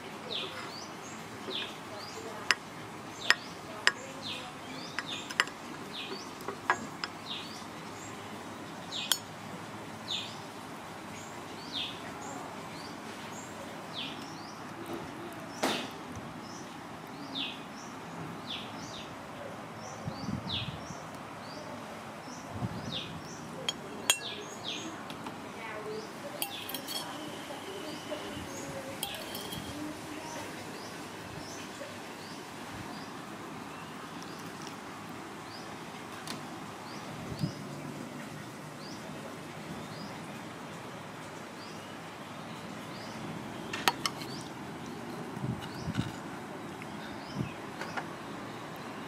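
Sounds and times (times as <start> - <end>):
cutlery clinking on plate: 4.9 - 7.2, 23.7 - 24.4, 26.4 - 27.5, 29.0 - 29.9, 43.8 - 44.4.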